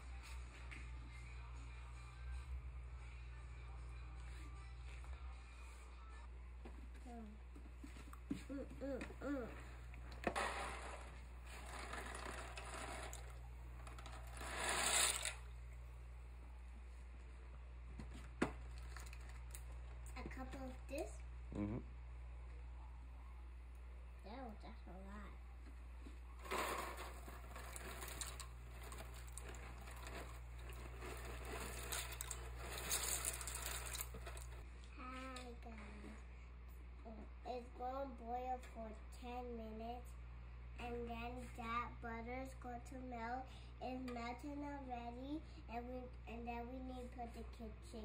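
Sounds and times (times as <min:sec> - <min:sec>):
dry pasta pouring from box: 0:26.4 - 0:34.6.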